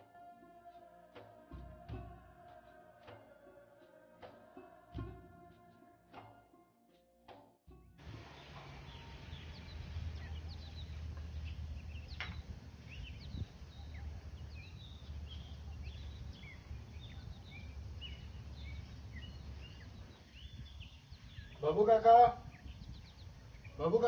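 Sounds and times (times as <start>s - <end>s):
low outdoor rumble: 8.0s - 24.0s
small birds chirping: 8.0s - 24.0s.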